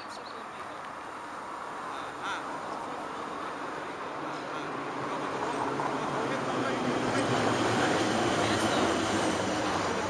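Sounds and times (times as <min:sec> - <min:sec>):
tram running noise: 0:03.0 - 0:10.0.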